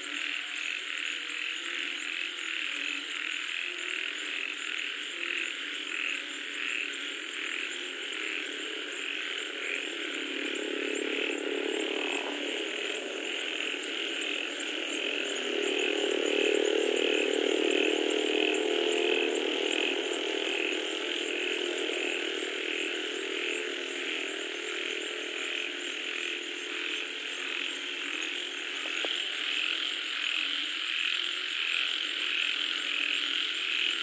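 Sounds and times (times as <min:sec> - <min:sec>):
frogs calling: 0:00.0 - 0:34.0
low steady drone: 0:05.8 - 0:34.0.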